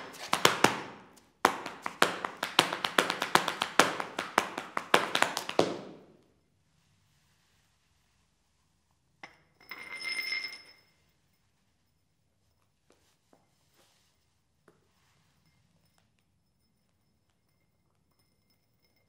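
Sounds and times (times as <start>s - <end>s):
glass hitting concrete floor: 0.0s - 6.0s
glass clinking and ringing: 9.2s - 11.1s, 15.4s - 19.0s.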